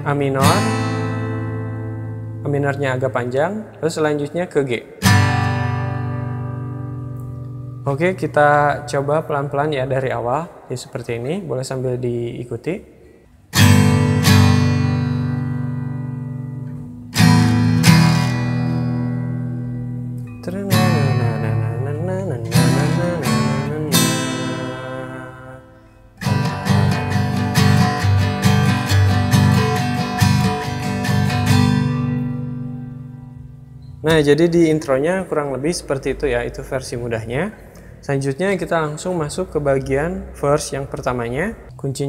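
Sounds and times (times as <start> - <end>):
acoustic guitar strumming: 0.0 - 2.9, 4.9 - 9.0, 13.2 - 35.0
acoustic guitar chords: 0.0 - 3.8, 4.8 - 9.0, 13.2 - 36.3.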